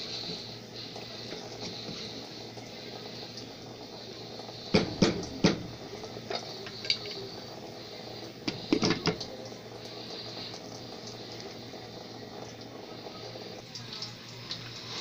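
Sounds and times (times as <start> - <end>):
rice sizzling in oil: 0.0 - 15.0
wooden spoon knocking on pot: 4.8 - 5.8.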